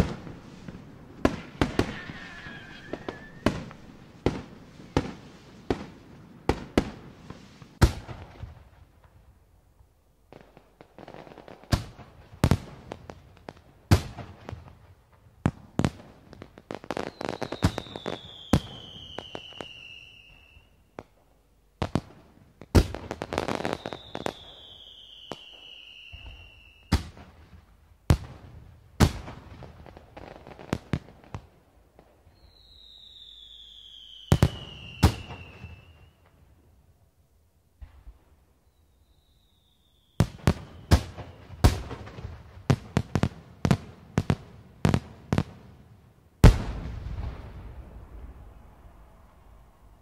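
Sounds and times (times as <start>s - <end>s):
fireworks bangs: 0.0s - 8.7s, 21.8s - 36.5s, 39.1s - 45.6s, 46.4s - 50.0s
whistling fireworks: 0.0s - 8.8s, 15.5s - 37.0s, 37.8s - 45.8s, 46.4s - 50.0s
fireworks crackling: 0.0s - 9.2s, 15.5s - 36.6s, 37.8s - 45.7s.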